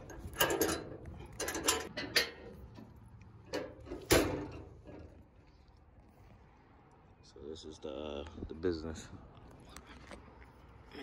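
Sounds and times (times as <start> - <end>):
metal clacks and knocks: 0.0 - 5.2.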